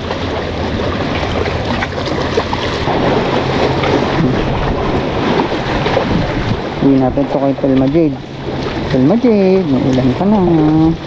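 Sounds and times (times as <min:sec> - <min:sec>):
waves washing against boulders: 0:00.0 - 0:11.0
wind noise on microphone: 0:00.0 - 0:11.0.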